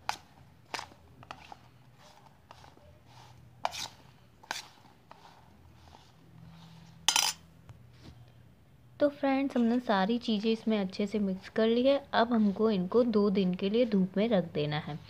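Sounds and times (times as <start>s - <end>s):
metal spoon scraping steel plate: 3.2s - 5.3s, 6.5s - 7.4s.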